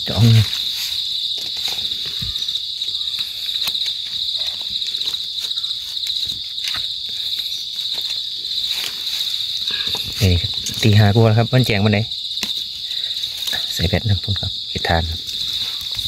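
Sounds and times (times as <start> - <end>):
rustling of dry leaf litter: 0.0 - 11.6, 14.9 - 16.0
forest insects chirring: 0.0 - 16.0.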